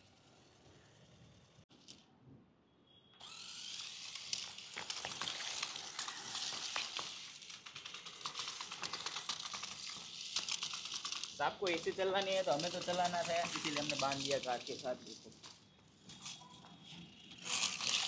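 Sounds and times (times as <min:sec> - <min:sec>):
toy car motor whirring: 0:03.2 - 0:18.0
quick clicks and rattles: 0:04.2 - 0:15.6.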